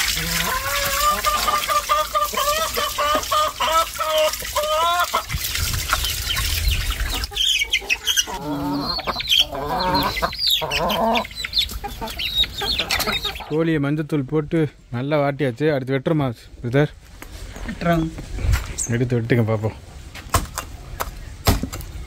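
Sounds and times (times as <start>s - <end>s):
chickens clucking: 0.0s - 13.7s.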